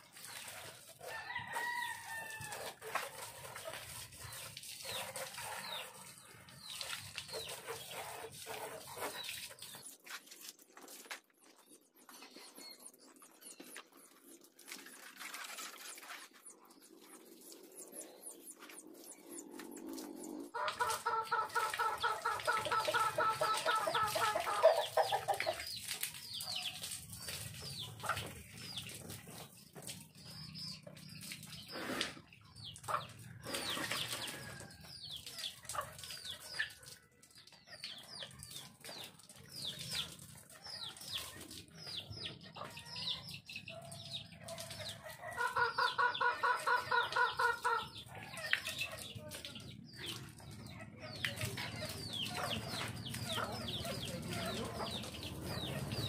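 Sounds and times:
small birds chirping: 0.0s - 56.0s
chickens clucking: 0.2s - 10.2s, 13.1s - 56.0s
rooster crowing: 1.1s - 2.7s.

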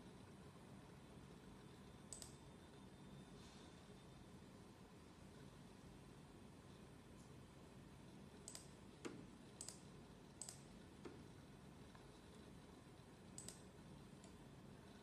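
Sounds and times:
faint computer mouse clicks: 2.1s - 2.4s, 8.4s - 9.8s, 10.4s - 11.2s, 13.4s - 14.4s.

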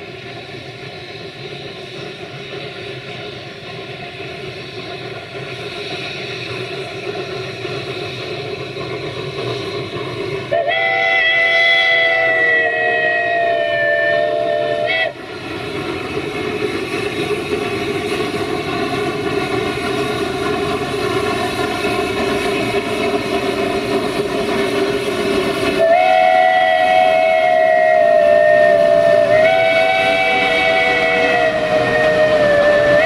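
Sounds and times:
steam locomotive whistle: 10.4s - 15.3s, 25.6s - 33.0s.

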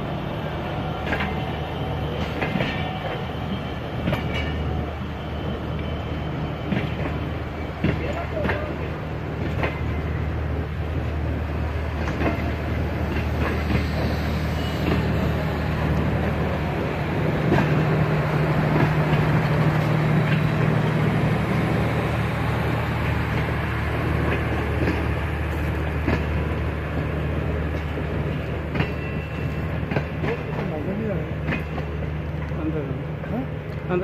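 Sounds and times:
train coaches rolling past: 0.0s - 34.0s
wheels clicking over rail joints: 7.8s - 10.0s, 12.0s - 14.1s.

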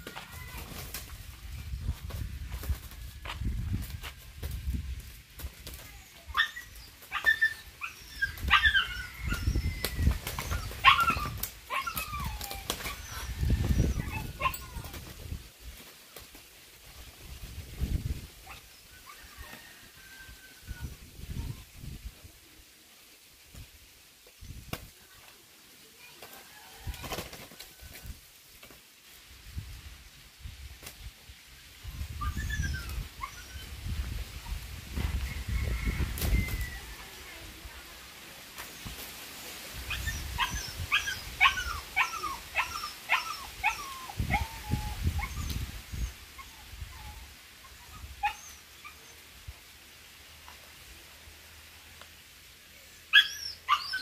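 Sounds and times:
wing flaps and scuffling: 0.0s - 18.1s, 26.1s - 28.9s
animal yelping: 39.9s - 45.5s.

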